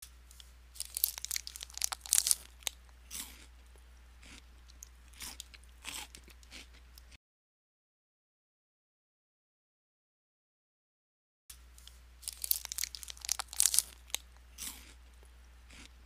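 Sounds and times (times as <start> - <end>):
faint low hum: 0.0 - 7.2, 11.5 - 16.0
person crunching food: 0.3 - 7.2, 11.8 - 16.0.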